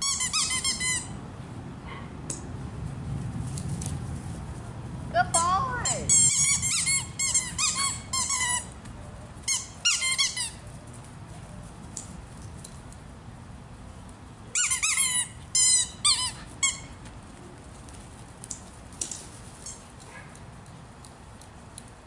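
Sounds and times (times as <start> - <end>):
dog yipping: 6.2 - 8.6.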